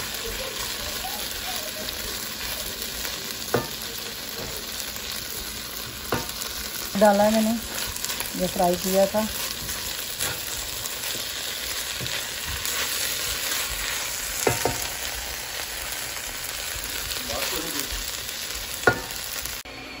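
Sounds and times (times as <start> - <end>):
spatula scraping wok: 0.0 - 17.9
vegetables and egg sizzling in wok: 0.0 - 19.7
spatula knocking on pan: 3.5 - 3.8, 6.0 - 6.4, 14.4 - 14.9, 18.8 - 19.2.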